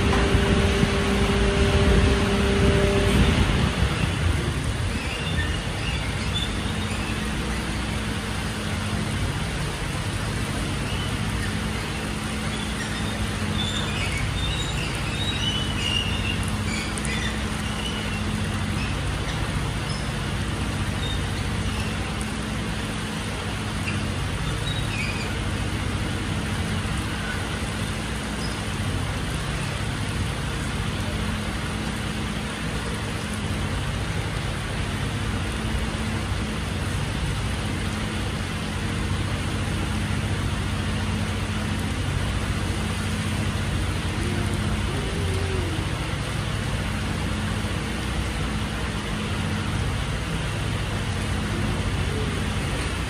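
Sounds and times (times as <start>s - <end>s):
diesel engine idling: 0.0s - 4.9s, 38.2s - 53.0s
rain on wet pavement: 0.0s - 53.0s.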